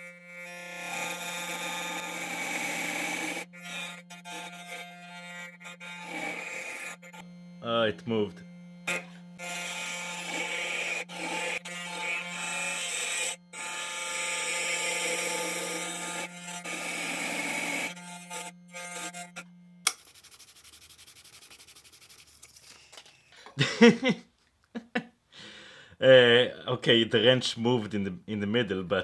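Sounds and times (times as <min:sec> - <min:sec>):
router cutting brass: 0:00.0 - 0:23.1
motor hum: 0:00.0 - 0:23.3.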